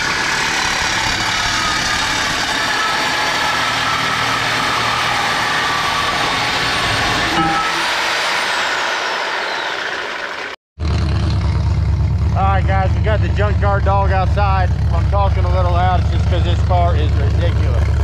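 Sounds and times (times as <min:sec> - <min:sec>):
power tool cutting steel pipe: 0:07.1 - 0:10.3.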